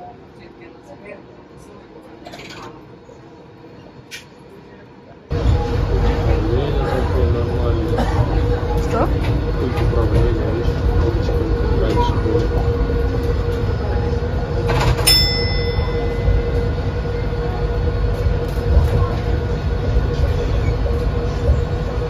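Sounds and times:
monorail car rumbling: 0:00.0 - 0:22.0
short ringing tone: 0:15.0 - 0:17.5.

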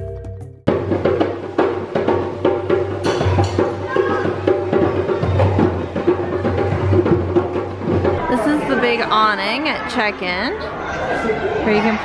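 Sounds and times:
djembe drums playing: 0:00.0 - 0:08.8.

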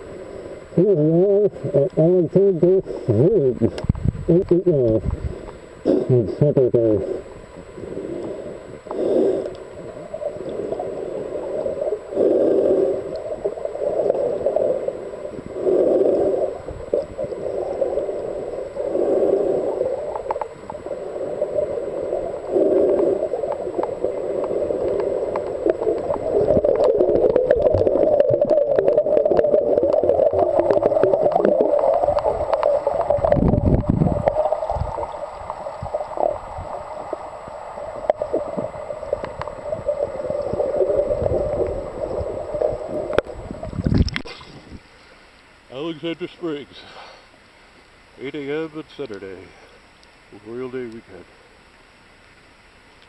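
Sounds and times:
underwater gurgling: 0:00.0 - 0:46.7.

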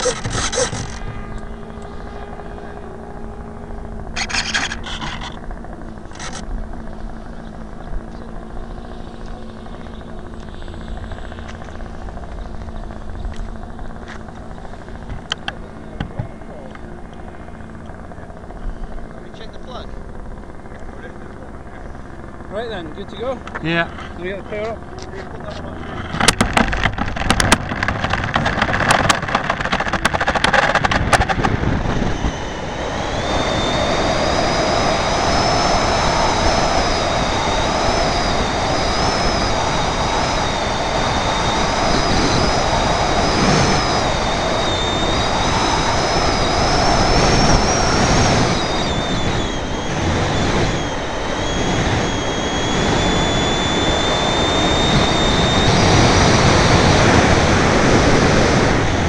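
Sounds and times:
glider rattling on runway: 0:00.0 - 0:59.0
high wavering whine: 0:00.0 - 0:59.0.

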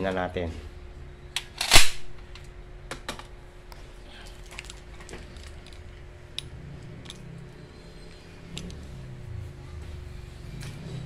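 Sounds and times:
magazine snapping into pistol: 0:01.4 - 0:02.1.

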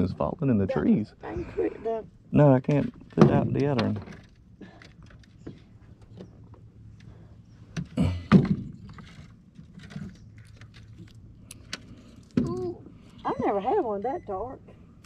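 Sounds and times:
knocks and clicks in boat: 0:02.7 - 0:06.6.

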